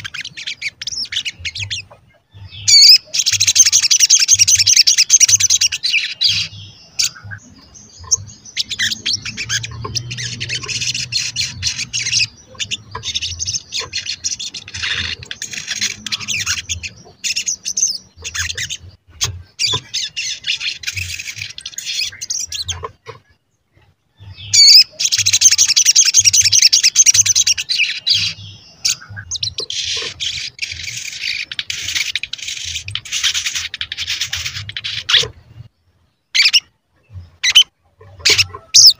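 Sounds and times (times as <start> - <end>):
bird twittering chirps: 0.0 - 38.9.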